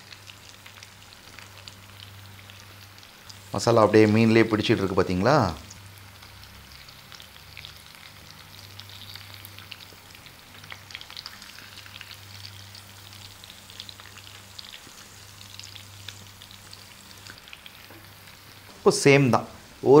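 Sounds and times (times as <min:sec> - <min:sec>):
fish sizzling in fat: 0:00.0 - 0:20.0.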